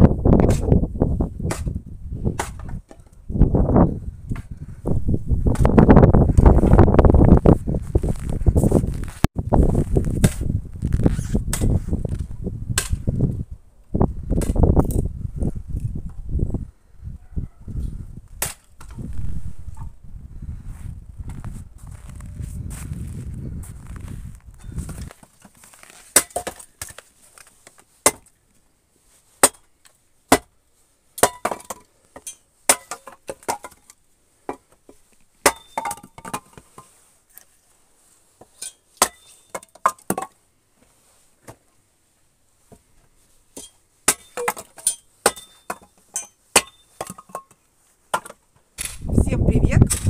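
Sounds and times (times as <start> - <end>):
hatchet chopping wood: 2.4 - 3.0, 18.4 - 18.7, 28.0 - 28.3, 29.4 - 29.7, 30.3 - 30.5, 31.2 - 31.8, 35.4 - 36.4, 43.6 - 47.2
split sticks clattering: 31.2 - 34.0, 38.5 - 40.3, 43.6 - 47.6.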